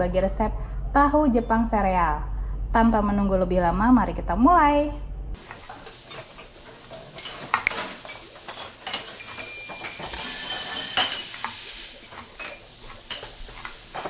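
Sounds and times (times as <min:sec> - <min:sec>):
food sizzling in a hot pan: 0:05.4 - 0:14.0
utensils clinking: 0:05.4 - 0:14.0.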